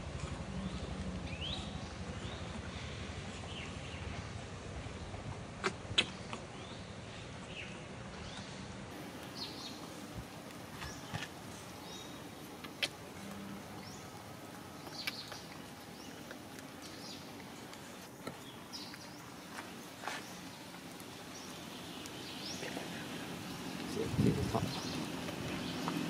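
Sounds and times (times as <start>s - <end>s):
motor vehicle passing: 9.0s - 26.0s.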